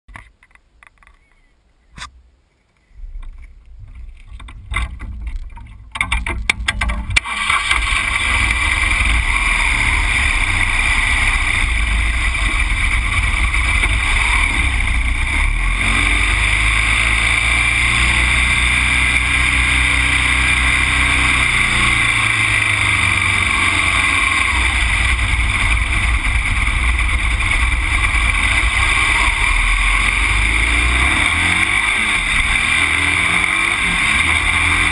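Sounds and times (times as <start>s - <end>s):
wind and road noise: 0.1s - 34.9s
vehicle engine: 3.0s - 34.9s.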